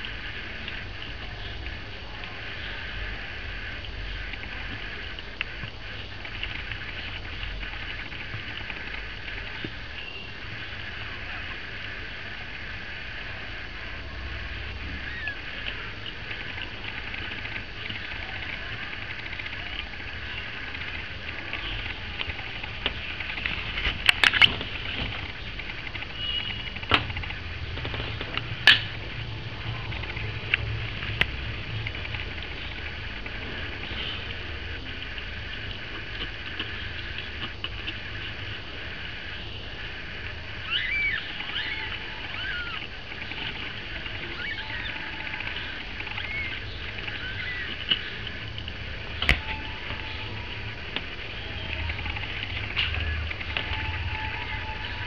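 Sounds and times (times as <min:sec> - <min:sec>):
steady low hum: 0:00.0 - 0:55.0
kittens mewing: 0:14.9 - 0:16.0, 0:40.6 - 0:48.4.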